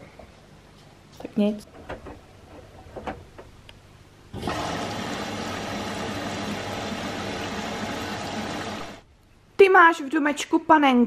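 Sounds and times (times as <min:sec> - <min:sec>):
washing machine drum rushing: 0:04.4 - 0:09.0.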